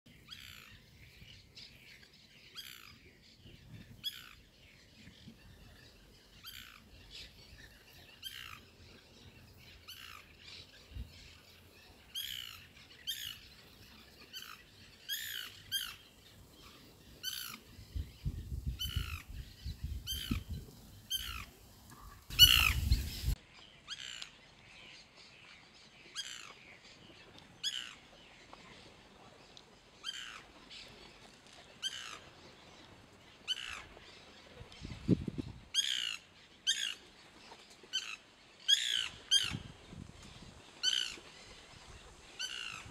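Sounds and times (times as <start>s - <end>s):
woodpecker calling: 20.0s - 24.1s.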